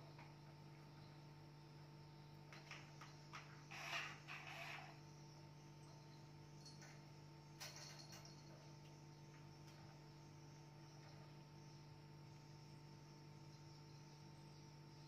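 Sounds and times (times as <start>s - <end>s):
steady electrical hum: 0.0s - 15.0s.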